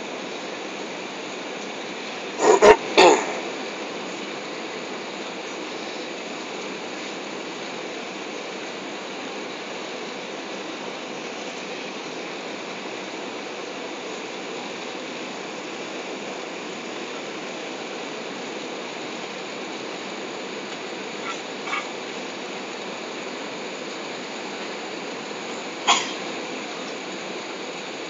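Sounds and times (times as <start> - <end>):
airliner cabin noise: 2.1 - 4.4.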